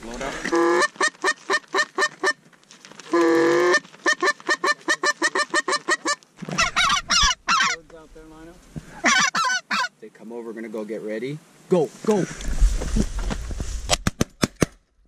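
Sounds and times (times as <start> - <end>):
goose call honks: 3.1 - 7.8, 9.0 - 9.9.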